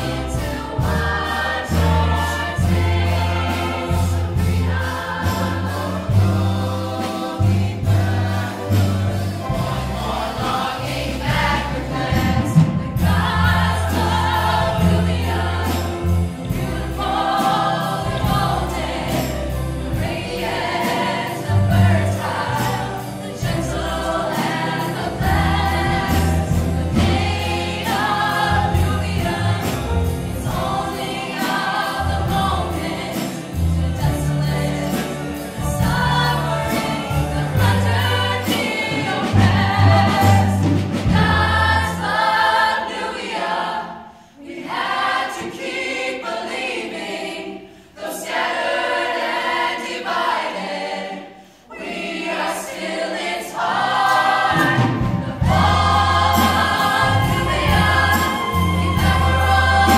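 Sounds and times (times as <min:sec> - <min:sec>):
cast singing in chorus: 0:35.8 - 0:59.9.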